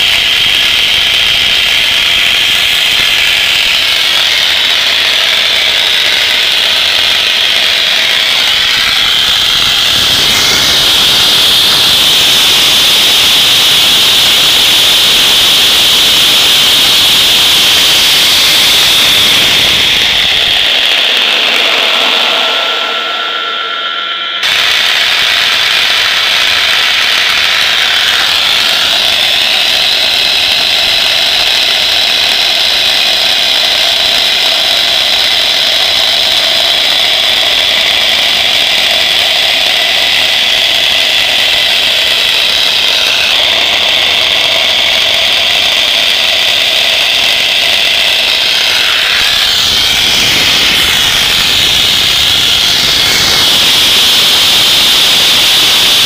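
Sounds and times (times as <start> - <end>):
jet engine whine and roar: 0.0 - 56.0.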